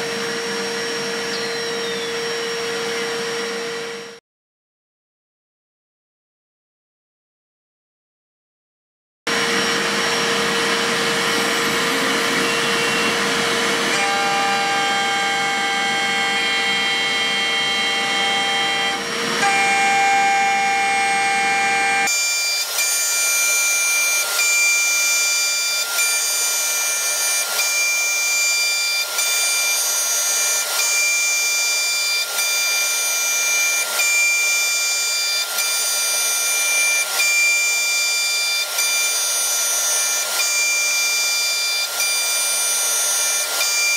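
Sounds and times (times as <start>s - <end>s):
milling machine cutting steel: 9.3s - 43.9s.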